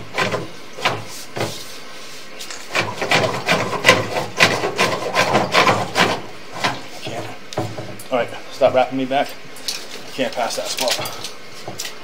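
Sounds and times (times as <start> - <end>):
camera knocking and scraping in pipe: 2.4 - 8.0.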